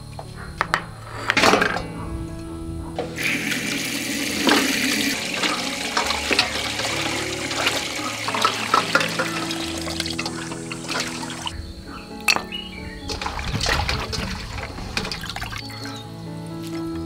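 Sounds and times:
hands washing meat splashing: 3.2s - 11.5s, 13.1s - 15.7s.

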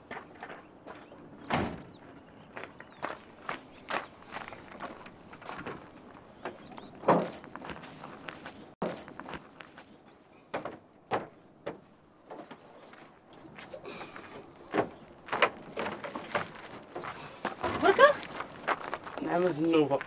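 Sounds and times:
knocks and thuds: 7.0s - 7.5s, 10.5s - 12.6s.

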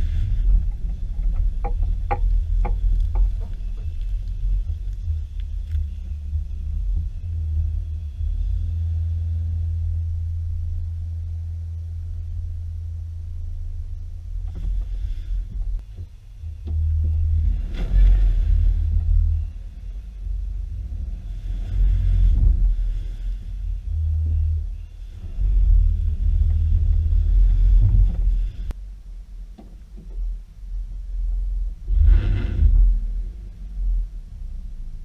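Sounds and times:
car rumble on dirt track: 0.0s - 35.0s.

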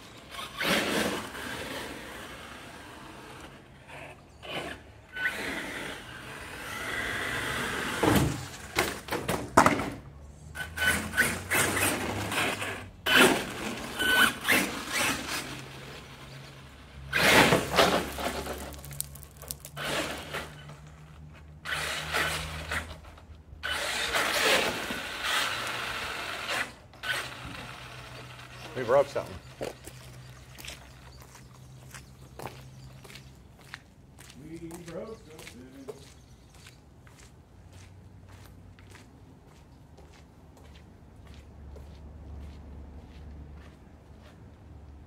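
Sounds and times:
rc truck motor running: 0.0s - 8.8s, 10.5s - 29.7s
tyres scrabbling: 7.9s - 31.9s.

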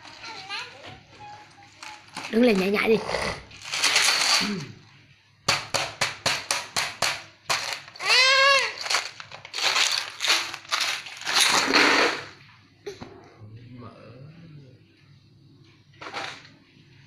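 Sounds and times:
plastic bottle crackling: 7.5s - 12.3s
toddler crying: 8.0s - 8.8s.

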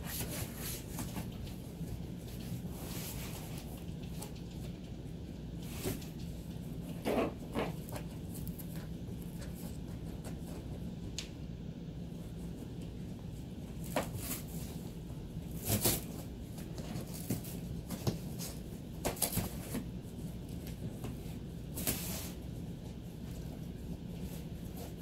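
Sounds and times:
steady low hum: 0.0s - 25.0s
puppy tearing cardboard: 6.8s - 10.7s, 13.8s - 14.8s, 15.4s - 19.9s.

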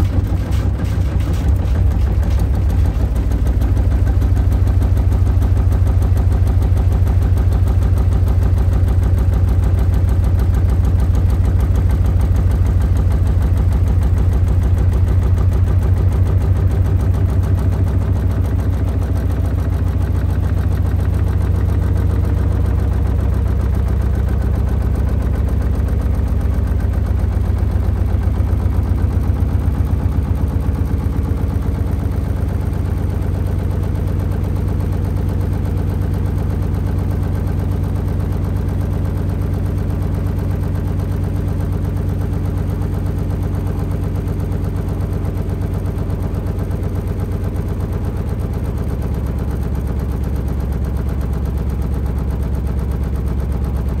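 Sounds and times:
machine cabinet shaking: 0.0s - 4.1s
washing machine drum pounding: 0.0s - 22.0s.

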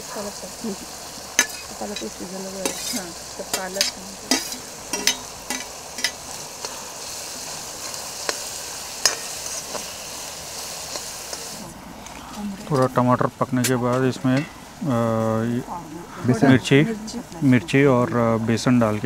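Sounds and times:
vegetables sizzling in hot oil: 0.0s - 19.0s
metal spoon scraping pan: 1.4s - 6.8s, 7.4s - 10.0s.

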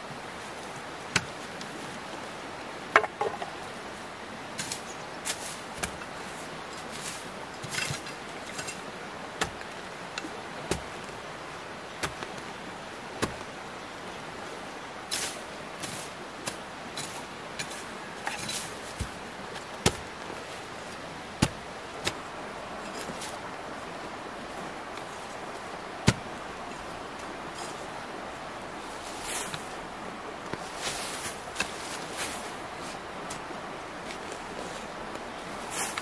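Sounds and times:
background hiss: 0.0s - 36.0s
shovel and knife clicking on soil: 35.7s - 36.0s.

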